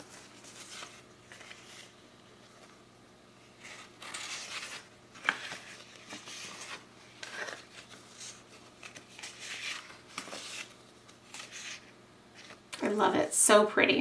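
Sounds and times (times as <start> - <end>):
paper sheets swishing and sliding: 3.5 - 12.6.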